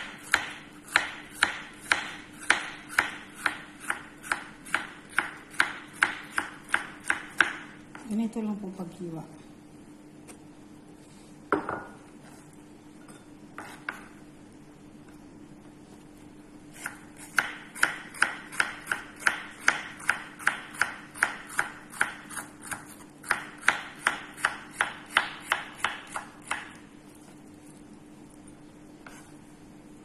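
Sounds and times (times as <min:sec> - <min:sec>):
knife chopping on wooden board: 0:00.0 - 0:08.0, 0:13.6 - 0:14.2, 0:16.8 - 0:26.8, 0:29.0 - 0:29.4.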